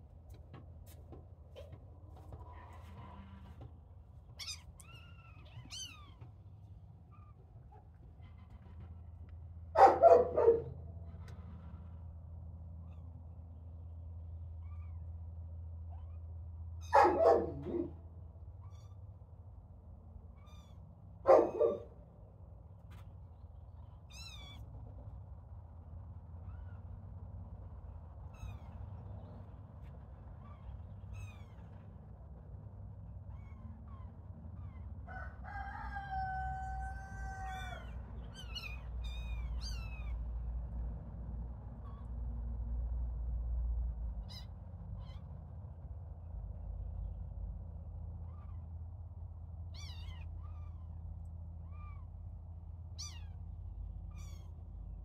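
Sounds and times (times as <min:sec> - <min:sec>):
kittens mewing: 0:36.6 - 0:40.2, 0:49.7 - 0:51.0, 0:52.9 - 0:53.5, 0:54.1 - 0:54.7.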